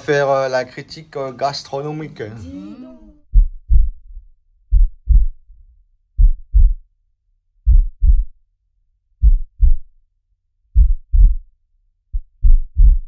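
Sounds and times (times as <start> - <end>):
heartbeat thumps: 3.2 - 5.4, 6.2 - 6.8, 7.6 - 8.4, 9.2 - 9.9, 10.8 - 11.5, 12.1 - 13.0.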